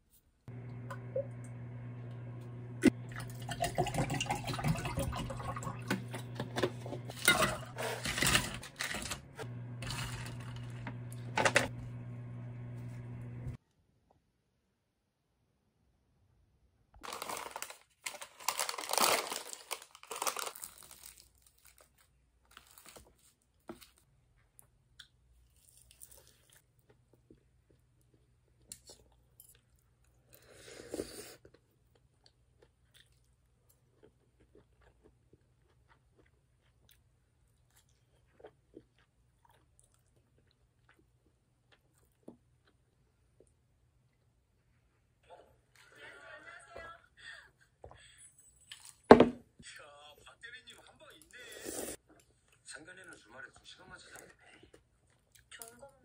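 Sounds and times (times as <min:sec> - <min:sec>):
plastic packet crinkling and tearing: 0:17.0 - 0:24.0
soft chewing: 0:21.4 - 0:45.8, 0:50.5 - 0:56.0.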